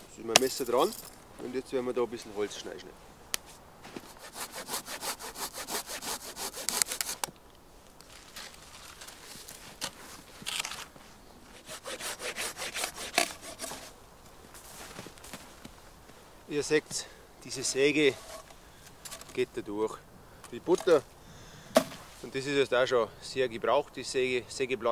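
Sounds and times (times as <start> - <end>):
folding saw cutting through log: 4.0 - 7.3, 11.5 - 13.9.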